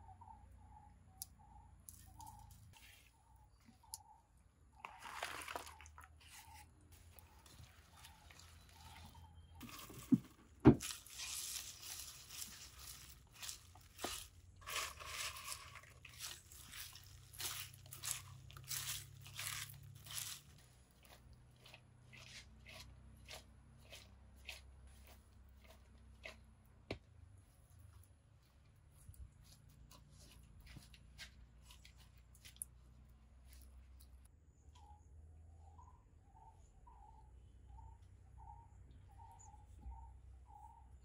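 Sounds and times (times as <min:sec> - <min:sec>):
hand mixing food in paste: 0:04.8 - 0:26.9.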